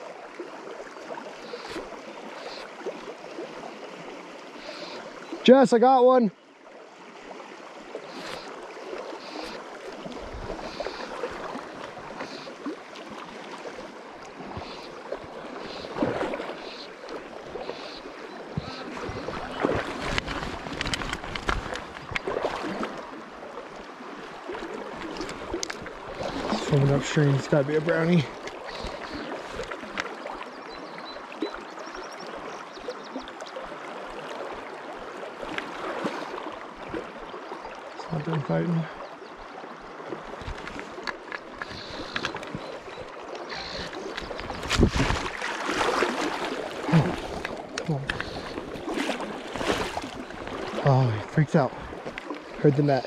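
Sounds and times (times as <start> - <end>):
river current rushing: 0.0 - 31.0, 39.6 - 53.0
fish splashing: 7.0 - 23.2, 24.0 - 30.4, 35.2 - 37.8, 40.0 - 52.5
river water rushing over riffle: 40.0 - 53.0.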